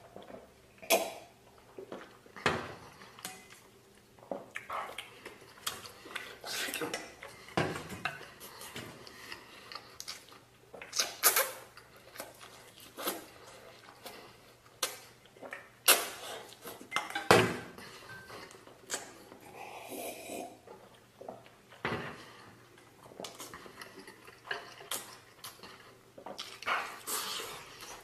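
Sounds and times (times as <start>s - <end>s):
eating noises: 2.8s - 17.0s, 22.7s - 28.0s.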